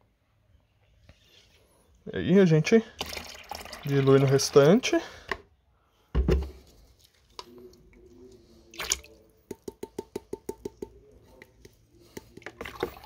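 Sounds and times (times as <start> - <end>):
liquid sloshing in a bucket: 2.9 - 4.7, 6.4 - 9.3, 12.4 - 13.0.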